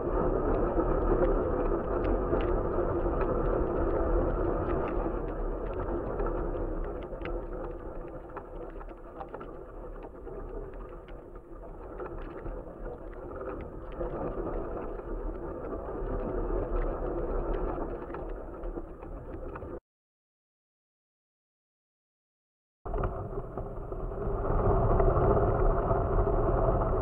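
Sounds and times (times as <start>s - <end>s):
small ticks and rattles: 0.4s - 19.7s.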